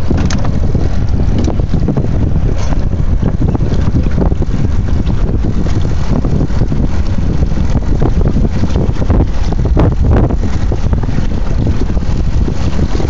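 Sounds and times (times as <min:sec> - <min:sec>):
water noise: 0:00.0 - 0:13.0
wind buffeting microphone: 0:00.0 - 0:13.0.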